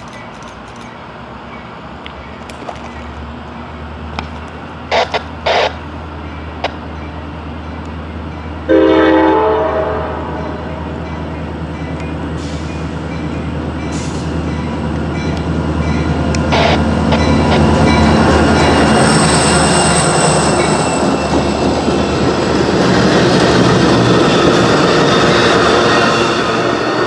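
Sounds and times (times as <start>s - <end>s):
sharp rail clicks: 0.0s - 1.0s
diesel locomotive engine drone: 0.0s - 27.0s.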